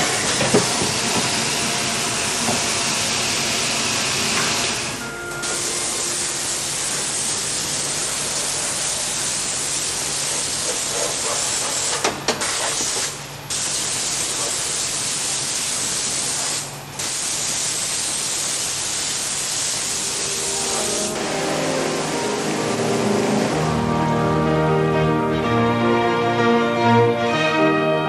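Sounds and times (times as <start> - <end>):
spray gun hissing: 4.6 - 23.8.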